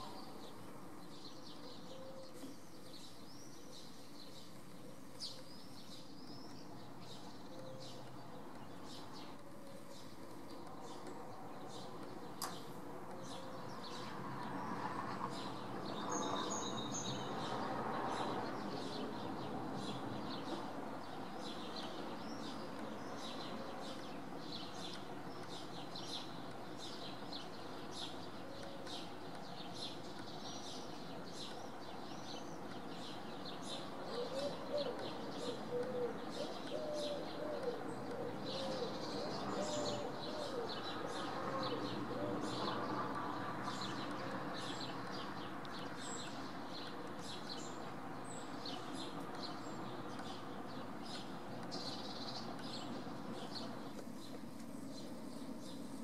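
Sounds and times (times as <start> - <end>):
small birds chirping: 0.0 - 56.0
steady background noise: 0.0 - 56.0
pigeon cooing: 34.1 - 40.8.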